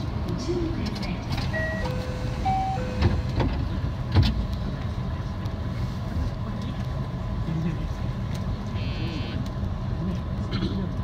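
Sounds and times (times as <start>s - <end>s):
train interior rumble: 0.0s - 11.0s.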